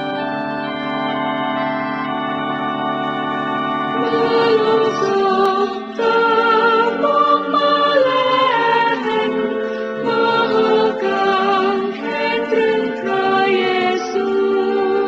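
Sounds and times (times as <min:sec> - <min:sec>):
voices singing long held notes: 0:03.9 - 0:15.0.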